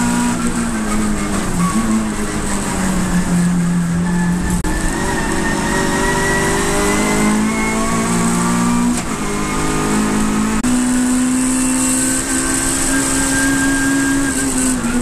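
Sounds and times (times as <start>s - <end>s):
race car engine accelerating: 0.0s - 15.0s.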